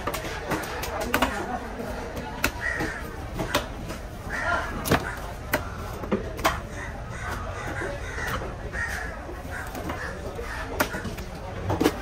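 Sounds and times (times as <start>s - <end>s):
crows cawing: 2.5s - 5.8s, 6.6s - 11.3s.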